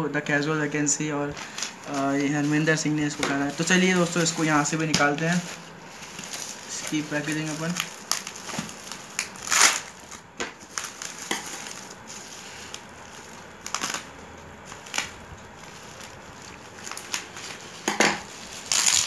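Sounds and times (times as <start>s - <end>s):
bubble wrap crinkling: 1.3s - 19.0s
scissors cutting plastic: 6.1s - 12.0s, 13.6s - 15.2s, 15.9s - 19.0s.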